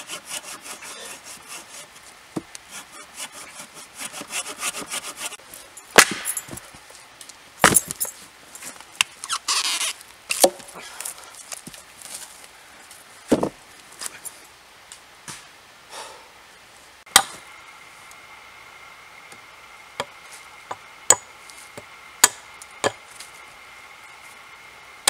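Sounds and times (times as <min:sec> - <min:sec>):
hatchet chopping wood: 0:05.9 - 0:06.6, 0:07.6 - 0:08.0, 0:10.3 - 0:10.7, 0:17.1 - 0:17.4, 0:20.7 - 0:23.0.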